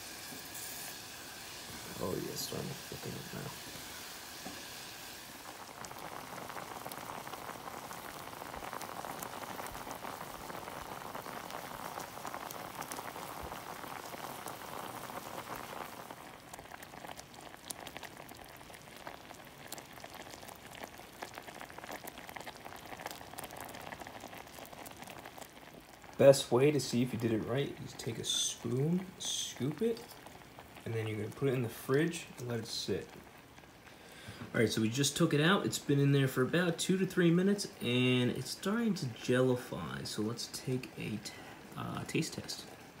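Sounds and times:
jam bubbling and popping: 0.0s - 39.4s.

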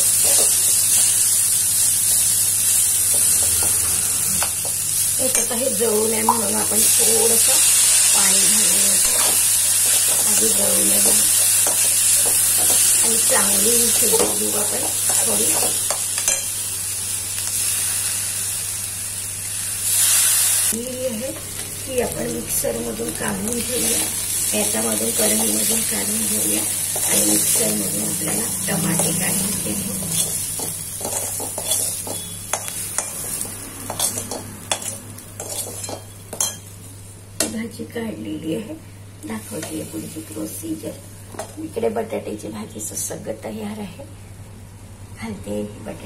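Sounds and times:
vegetables sizzling in a pan: 0.0s - 42.4s
spatula scraping a metal pan: 30.0s - 36.6s.

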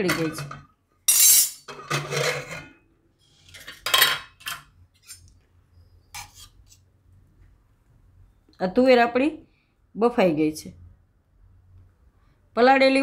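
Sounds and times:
metal lid and spoon clattering: 0.0s - 2.8s, 3.6s - 4.7s.

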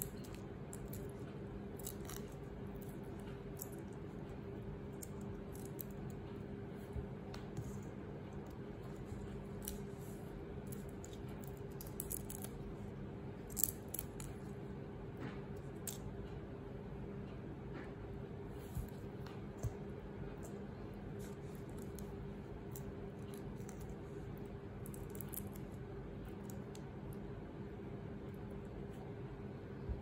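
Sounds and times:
steady low hum: 0.0s - 30.0s
shrimp shells clicking: 10.7s - 12.5s.

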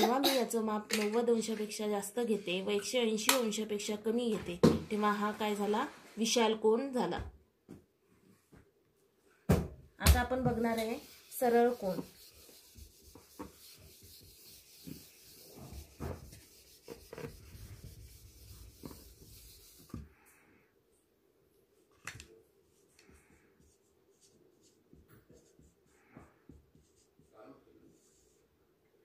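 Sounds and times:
faint marker writing on board: 10.4s - 20.1s, 22.7s - 28.4s
eraser scrubbing whiteboard: 10.5s - 20.1s, 22.7s - 28.4s.

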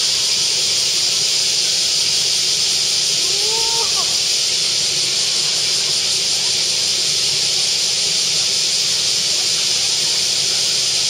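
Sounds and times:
steady high-pitched hiss: 0.0s - 11.0s.

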